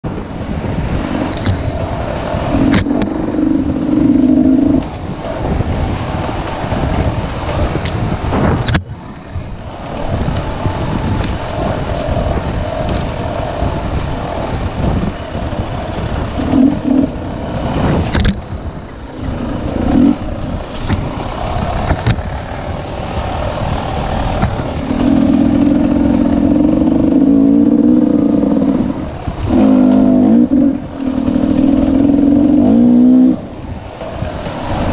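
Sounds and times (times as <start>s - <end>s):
dirt bike engine revving: 9.7s - 34.9s.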